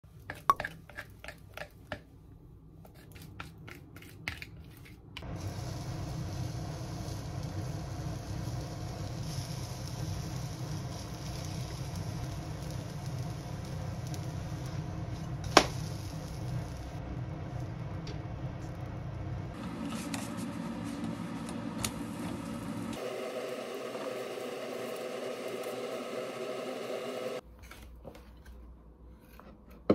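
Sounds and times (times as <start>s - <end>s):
batter hissing in a frying pan: 5.2s - 17.0s, 22.0s - 27.4s.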